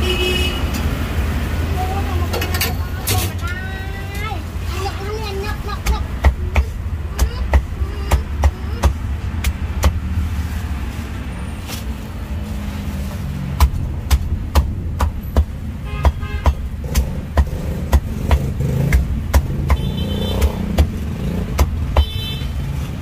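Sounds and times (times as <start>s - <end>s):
street traffic rumble: 0.0s - 23.0s
cleaver chopping on board: 13.6s - 22.1s.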